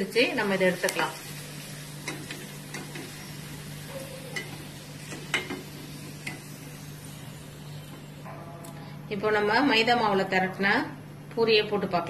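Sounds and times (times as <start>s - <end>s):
oil sizzling: 0.0s - 8.2s.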